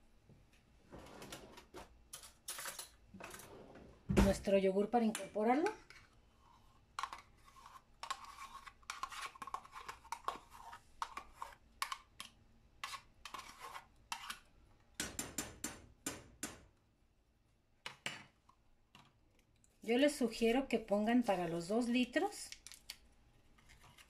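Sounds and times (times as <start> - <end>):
spoon scraping plastic cup: 5.6 - 14.5, 23.6 - 24.0.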